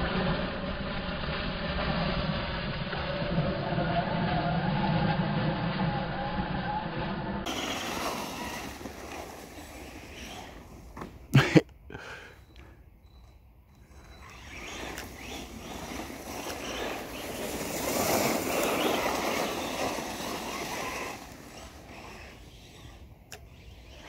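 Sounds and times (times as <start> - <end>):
toy car rustling through leaves: 7.5 - 11.0, 13.9 - 24.0.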